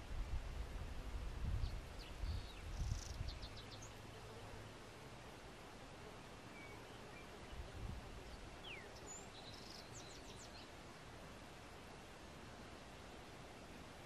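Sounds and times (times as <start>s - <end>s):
soft hiss: 0.0s - 14.0s
bird chirps: 8.6s - 10.7s.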